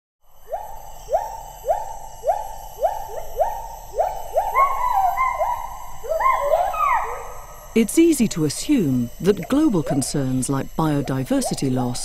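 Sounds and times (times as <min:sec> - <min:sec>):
steady high-pitched hum: 0:00.2 - 0:12.0
higher animal calling: 0:00.5 - 0:07.6.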